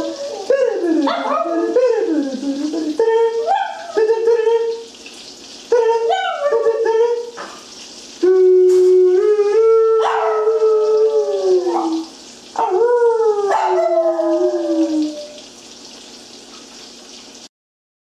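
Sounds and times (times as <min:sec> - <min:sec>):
dog howling: 0:00.0 - 0:04.6, 0:05.8 - 0:07.2, 0:08.2 - 0:15.4.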